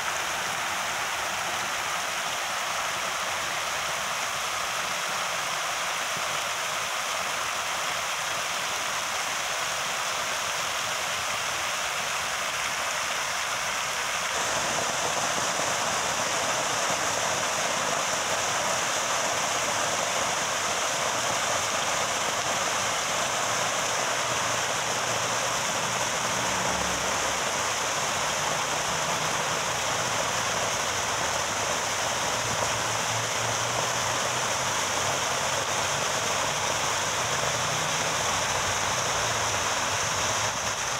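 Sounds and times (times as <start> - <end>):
fountain water splashing: 0.0 - 40.9.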